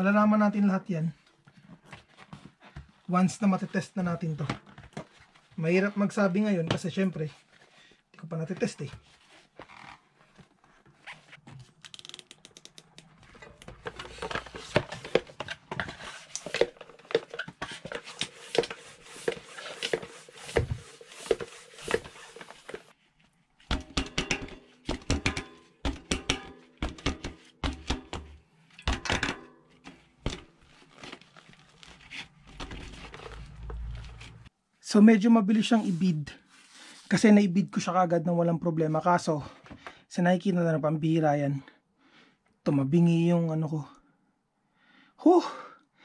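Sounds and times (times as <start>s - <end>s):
bicycle pump strokes: 16.1s - 23.0s.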